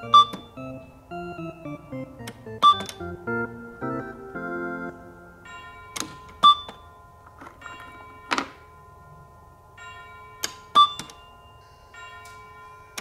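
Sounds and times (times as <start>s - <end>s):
electronic toy jingle: 0.0s - 7.0s.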